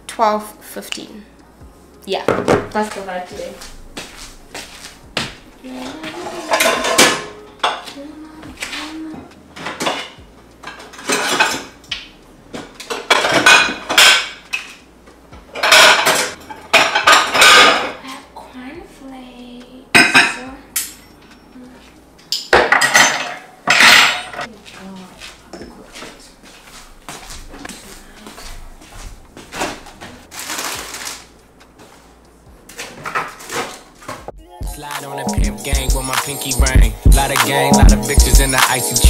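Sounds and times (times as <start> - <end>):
dishes and cutlery clattering: 5.8 - 7.9, 9.6 - 11.8, 12.8 - 14.8, 15.6 - 18.0, 20.0 - 21.1, 22.2 - 24.5.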